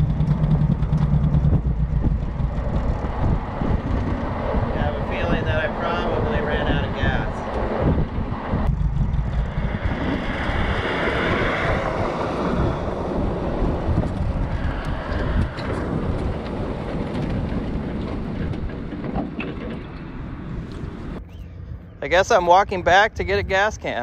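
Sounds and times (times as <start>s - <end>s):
car engine sputtering at low revs: 0.0s - 24.0s
wind and road noise: 0.0s - 24.0s
tyres rolling on gravel: 11.8s - 21.2s.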